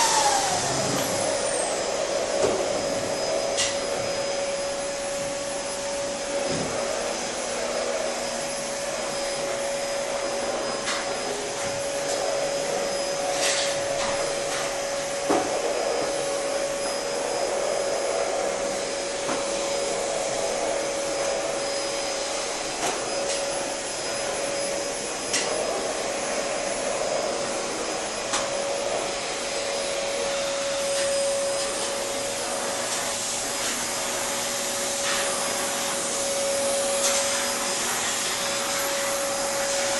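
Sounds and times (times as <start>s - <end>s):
machine whir: 0.0s - 5.3s.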